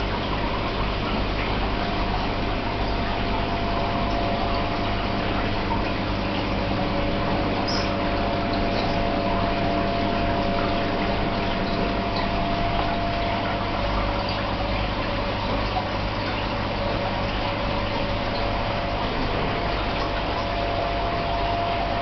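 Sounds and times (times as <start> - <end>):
low pump hum: 0.0 - 22.0
rushing water: 0.0 - 22.0.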